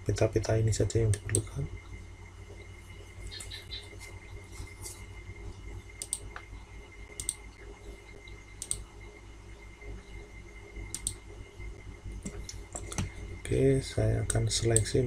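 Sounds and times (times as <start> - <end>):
faint high whine: 0.0 - 15.0
steady low hum: 0.0 - 15.0
computer mouse double clicks: 10.9 - 11.2.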